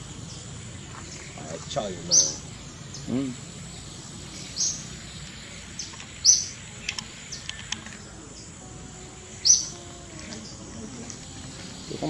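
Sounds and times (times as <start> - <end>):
bird chirping: 0.0 - 12.0
thin steady high whine: 0.0 - 12.0
faint clicks: 6.8 - 8.2.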